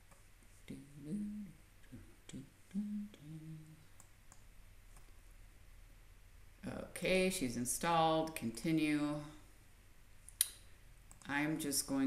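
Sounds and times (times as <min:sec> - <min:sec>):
person humming: 0:00.7 - 0:03.8.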